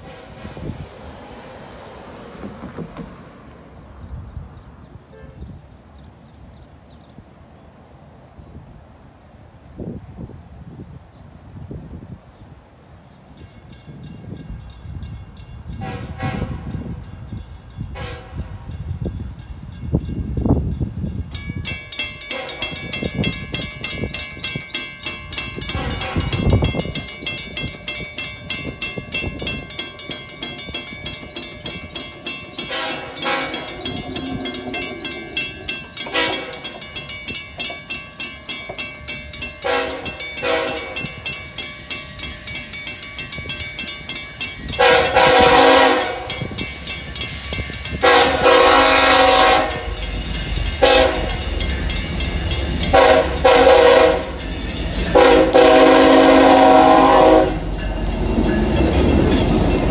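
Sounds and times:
train horn blasts: 0.0s - 1.3s, 5.1s - 5.6s, 15.7s - 17.0s, 17.9s - 18.7s, 22.3s - 22.8s, 25.7s - 26.6s, 32.6s - 36.7s, 39.6s - 41.1s, 44.8s - 46.6s, 48.0s - 50.0s, 50.8s - 51.5s, 52.8s - 54.4s, 55.1s - 57.7s
railroad crossing bell ringing: 13.3s - 59.9s.

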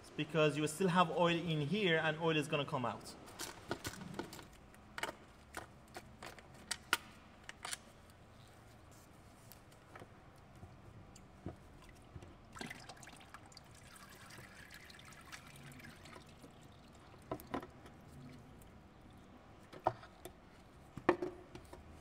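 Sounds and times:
fluid trickling and dripping: 10.6s - 20.3s.

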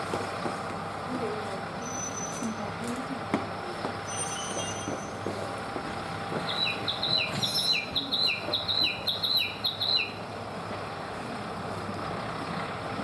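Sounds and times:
idling diesel railcars hum: 0.0s - 13.0s
bird chirping quickly: 6.5s - 10.2s.

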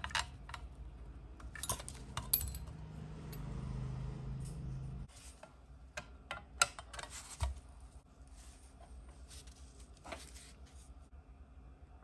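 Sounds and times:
small parts clicking and tapping: 1.4s - 2.7s.

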